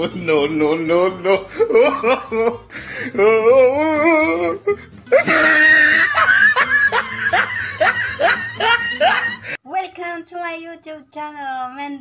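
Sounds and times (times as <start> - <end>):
woman laughing: 1.5 - 2.6, 5.1 - 9.6.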